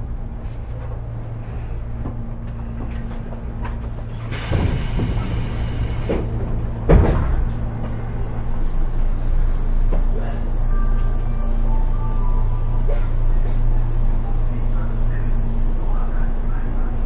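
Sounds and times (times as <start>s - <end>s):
low hum of train equipment: 0.0s - 17.0s
air hiss of train doors: 4.2s - 6.5s, 7.7s - 11.2s
heavy door thump: 4.4s - 8.1s.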